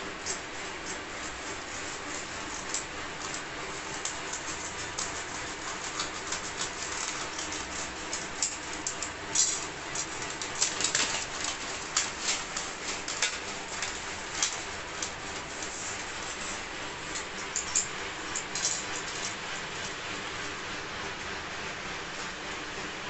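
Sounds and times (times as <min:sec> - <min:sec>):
scissors cutting paper: 0:00.0 - 0:20.0.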